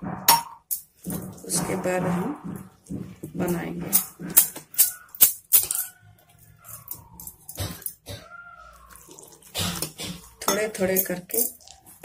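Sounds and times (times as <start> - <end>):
faint animal whining: 5.8 - 10.4
whisk clinking against metal bowl: 10.4 - 11.6.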